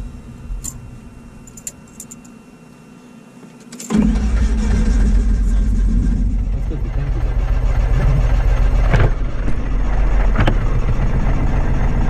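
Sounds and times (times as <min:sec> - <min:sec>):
aircraft piston engine starting: 0:03.8 - 0:12.0.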